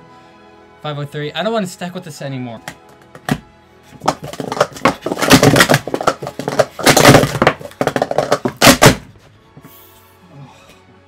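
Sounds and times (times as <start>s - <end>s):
plastic cups clacking: 4.0s - 9.0s.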